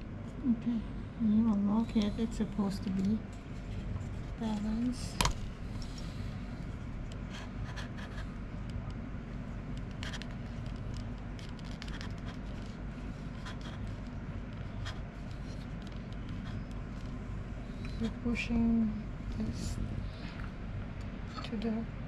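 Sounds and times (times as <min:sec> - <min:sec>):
steady low hum: 0:00.0 - 0:22.0
small clicks and scrapes: 0:09.7 - 0:17.2.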